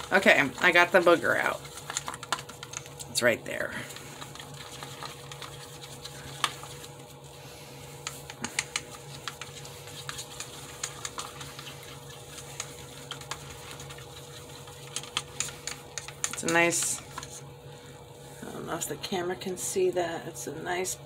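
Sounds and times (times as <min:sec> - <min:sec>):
steady low hum: 0:00.0 - 0:21.0
stick tapping plastic cup: 0:14.8 - 0:17.3.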